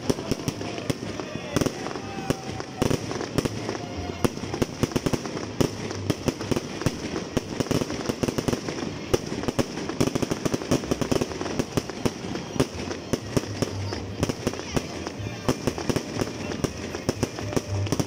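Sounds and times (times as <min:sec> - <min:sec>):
fireworks bangs and crackling: 0:00.0 - 0:18.0.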